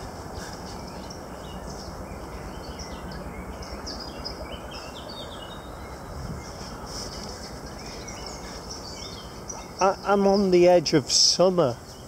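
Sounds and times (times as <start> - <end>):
low outdoor background noise: 0.0 - 12.0
songbirds chirping and trilling: 0.0 - 12.0.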